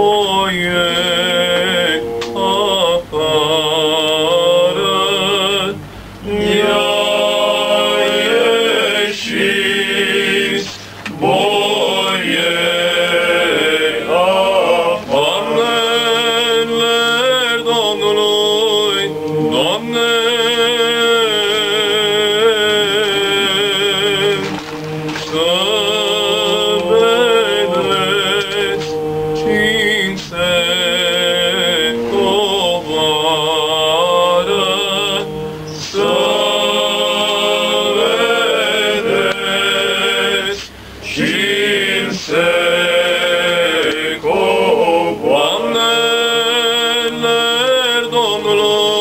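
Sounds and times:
male vocal group singing a cappella: 0:00.0 - 0:49.0.

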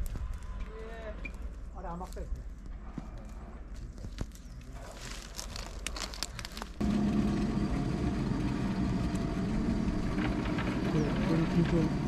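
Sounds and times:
engine running steadily: 0:06.5 - 0:12.0.

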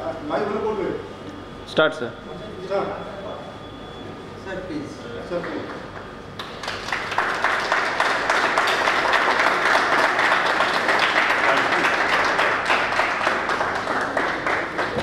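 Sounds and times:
group of people applauding: 0:05.3 - 0:15.0.

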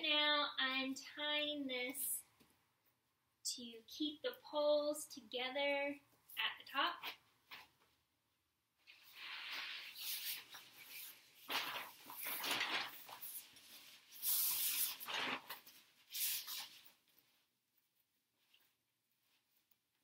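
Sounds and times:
nylon tent fly rustling: 0:08.8 - 0:17.4.

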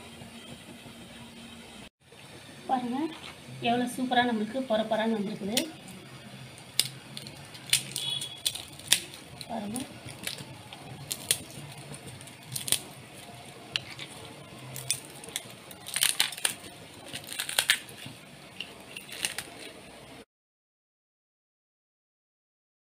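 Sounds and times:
crisp crackers snapping: 0:06.6 - 0:19.9.

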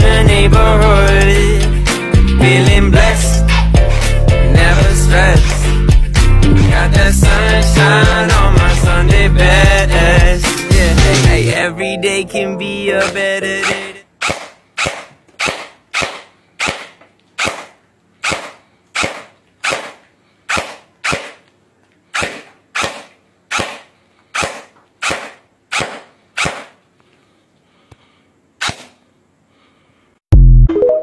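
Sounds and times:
gel blaster shots: 0:13.6 - 0:21.4, 0:22.2 - 0:26.8.

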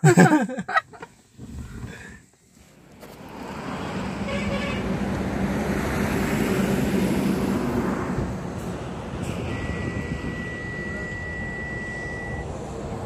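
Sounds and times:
vehicle engine hum: 0:00.0 - 0:13.0
brief higher tone: 0:09.3 - 0:12.5.

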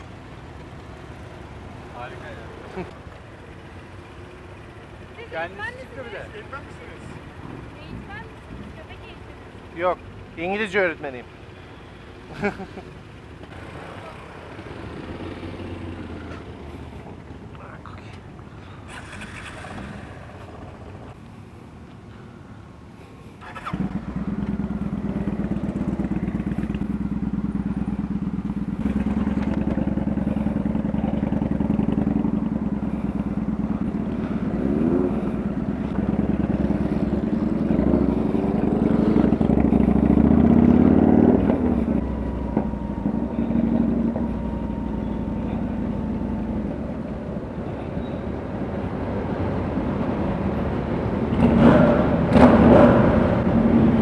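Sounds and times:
motorcycle engine accelerating: 0:18.9 - 0:21.1, 0:23.4 - 0:47.6, 0:48.5 - 0:54.0.

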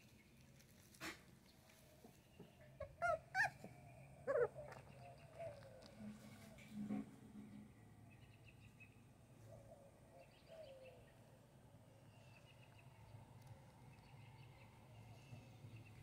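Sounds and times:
distant birds chirping: 0:01.4 - 0:06.6.

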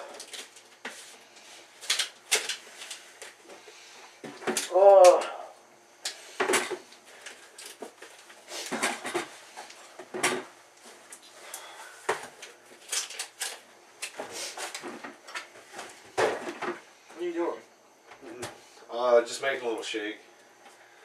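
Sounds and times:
plastic containers knocking and clattering: 0:07.7 - 0:09.3.

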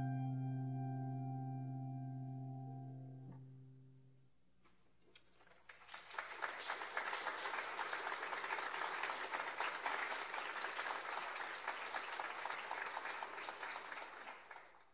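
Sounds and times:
audience applauding: 0:05.4 - 0:14.9.

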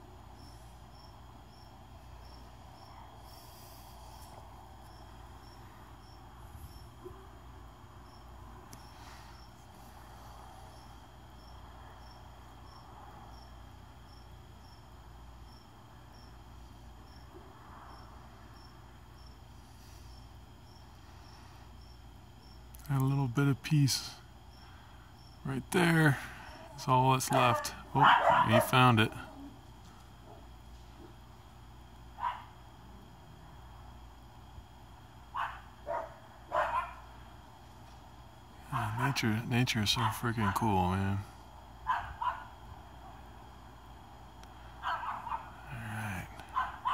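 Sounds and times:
cricket chirping: 0:00.0 - 0:46.9
low background hum: 0:00.0 - 0:46.9
dog barking: 0:27.3 - 0:28.8, 0:32.2 - 0:32.6, 0:35.3 - 0:37.1, 0:38.7 - 0:39.2, 0:40.0 - 0:40.7, 0:41.8 - 0:42.5, 0:44.8 - 0:45.6, 0:46.5 - 0:46.9.

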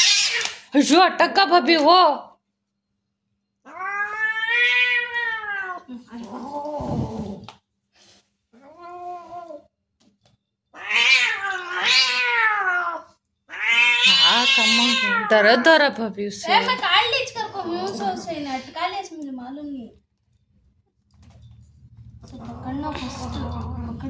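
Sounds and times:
cat yowling: 0:00.0 - 0:00.6, 0:03.6 - 0:05.9, 0:10.7 - 0:15.8.

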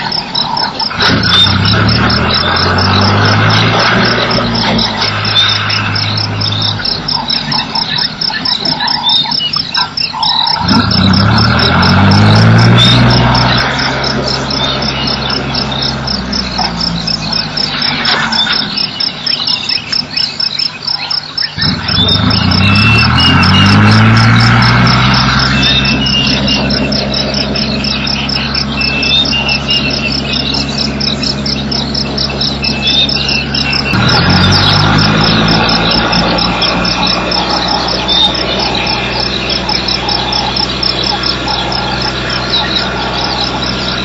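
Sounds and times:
fast high pulsing call: 0:00.0 - 0:44.0
frogs and insects calling: 0:00.0 - 0:44.0
low droning calls: 0:00.0 - 0:44.0.

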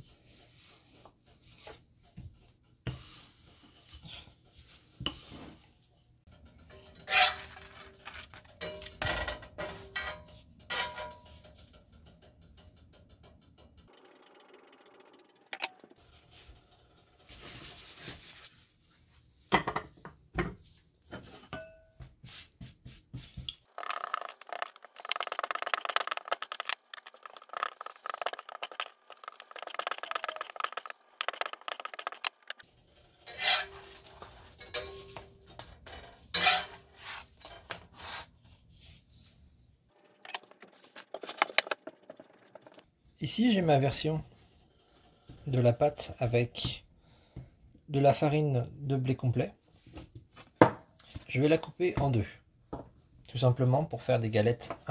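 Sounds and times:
metal spatula scraping griddle pan: 0:06.5 - 0:11.7, 0:26.2 - 0:38.3
hands patting dough: 0:22.0 - 0:32.6.

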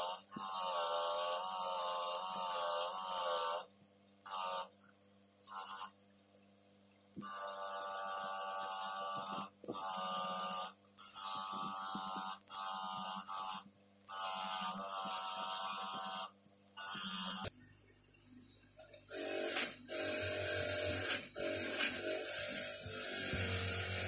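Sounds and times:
bench grinder buzzing: 0:07.2 - 0:17.5, 0:19.1 - 0:24.0.

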